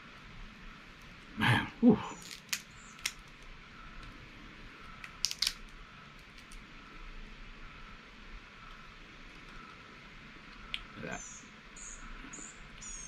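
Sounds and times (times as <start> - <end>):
low grunt-like sound: 1.4 - 2.2
crab shell cracking: 2.2 - 4.1, 4.8 - 6.6.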